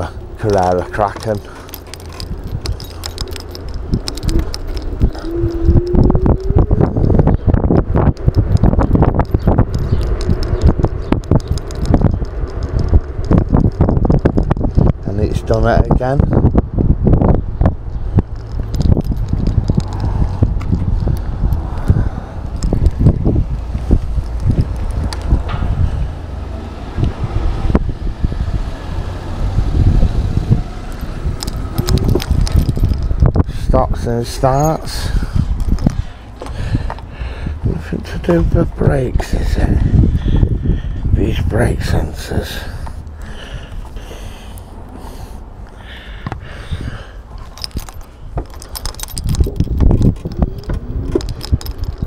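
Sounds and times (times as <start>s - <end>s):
loose parts rattling: 0.0s - 7.4s, 8.1s - 15.8s, 18.3s - 26.0s, 30.9s - 40.5s, 47.2s - 52.0s
road rumble: 0.0s - 52.0s
wind buffeting microphone: 0.0s - 52.0s
sharp clicks: 0.4s - 15.0s, 30.9s - 34.8s.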